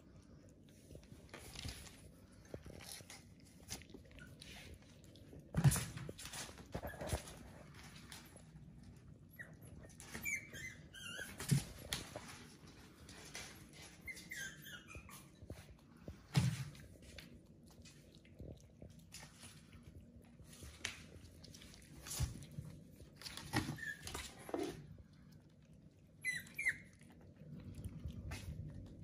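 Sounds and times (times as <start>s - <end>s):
puppy squeaks: 9.3s - 11.9s, 13.8s - 15.6s, 23.4s - 24.6s, 26.2s - 27.0s.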